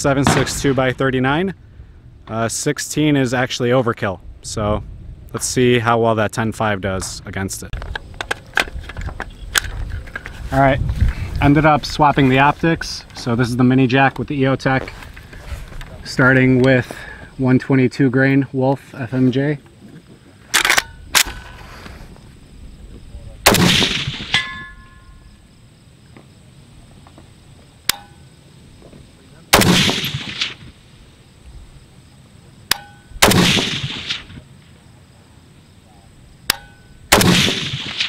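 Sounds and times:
gunshots with echo: 0.2 - 1.0, 23.5 - 24.4, 29.5 - 30.7, 33.2 - 34.4, 37.1 - 38.0
metallic pings: 24.3 - 25.3, 27.9 - 28.3, 32.7 - 33.2, 36.5 - 37.0.

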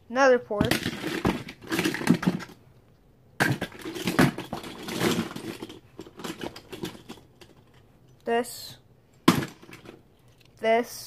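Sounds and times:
toy cars clattering: 0.6 - 2.6, 3.4 - 7.8, 9.3 - 10.5.

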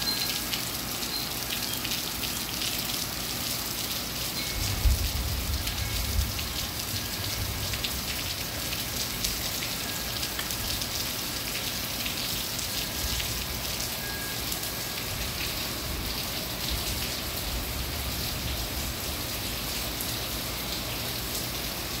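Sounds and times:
rain falling on shrubs and lawn: 0.0 - 22.0.

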